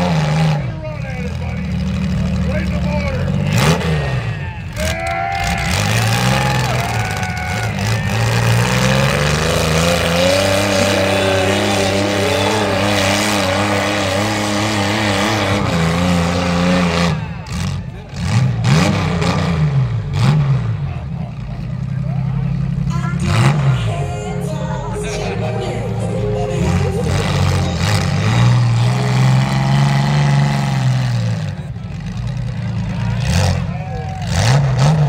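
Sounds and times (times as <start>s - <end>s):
car engine revving hard: 3.3s - 4.8s, 5.4s - 21.2s, 23.2s - 24.0s, 26.6s - 32.4s, 33.2s - 35.0s.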